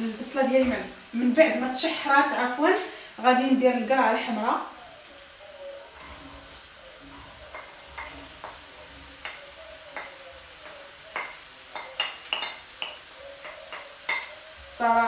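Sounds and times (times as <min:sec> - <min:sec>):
onion sizzling in a pan: 0:00.0 - 0:15.0
wooden spoon tapping plate and pan: 0:07.5 - 0:14.4.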